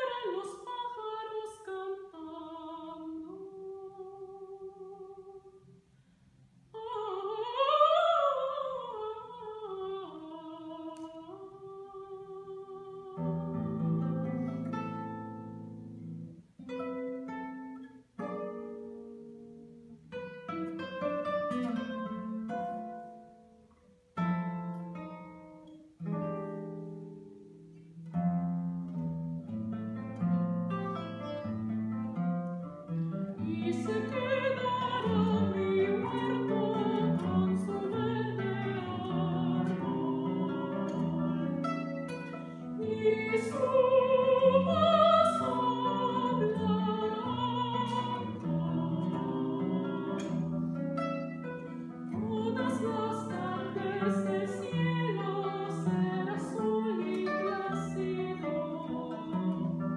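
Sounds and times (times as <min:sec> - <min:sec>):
soprano singing with vibrato: 0:00.0 - 0:05.7, 0:06.7 - 0:15.6, 0:33.4 - 0:59.9
classical guitar plucking: 0:00.0 - 0:59.9.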